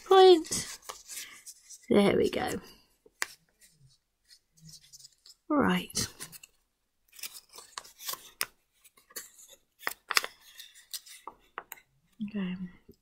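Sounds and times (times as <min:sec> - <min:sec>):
paper crinkling: 0:00.0 - 0:01.9, 0:06.0 - 0:11.6.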